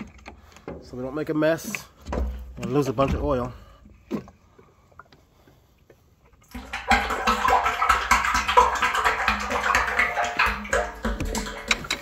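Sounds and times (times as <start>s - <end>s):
oil pouring into a tank: 6.4s - 12.0s.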